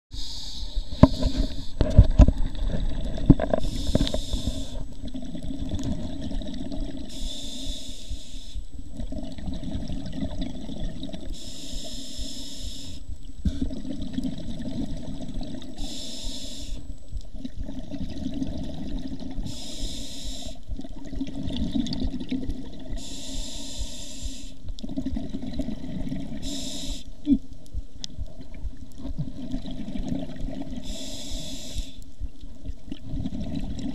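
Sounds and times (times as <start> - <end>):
regulator breathing hiss: 0.1 - 1.8, 3.6 - 4.9, 7.0 - 8.7, 11.3 - 13.6, 15.8 - 16.8, 19.4 - 20.6, 22.9 - 24.6, 26.4 - 27.2, 30.8 - 32.1
low bubbling rumble: 0.5 - 7.3, 8.1 - 11.4, 12.7 - 15.8, 16.9 - 19.6, 20.6 - 26.5, 27.3 - 31.0, 32.1 - 33.9.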